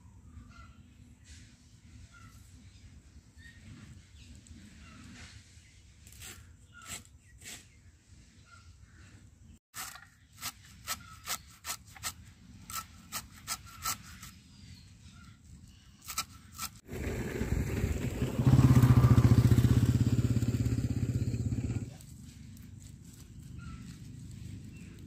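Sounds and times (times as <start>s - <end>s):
small engine running: 16.8s - 25.0s.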